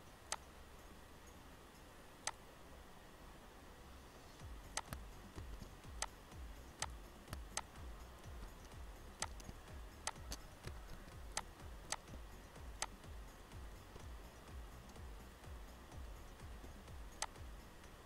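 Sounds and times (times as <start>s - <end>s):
computer mouse clicking: 4.7s - 6.2s, 6.8s - 7.8s, 8.4s - 12.2s, 12.8s - 13.0s, 17.2s - 18.0s
keyboard clicking: 4.7s - 6.2s, 6.8s - 7.8s, 8.4s - 12.2s, 17.2s - 17.4s.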